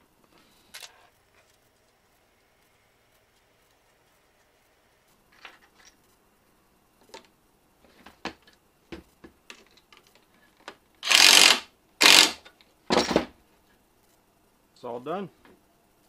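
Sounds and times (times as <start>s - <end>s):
cordless driver running: 11.0s - 12.4s.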